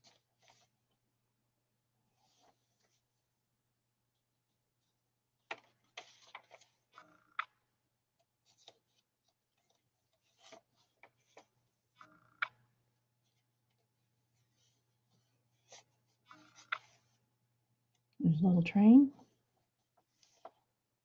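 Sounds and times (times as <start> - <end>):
paper pages turning: 0.0 - 0.7, 5.5 - 7.0, 8.4 - 12.1, 13.3 - 17.2.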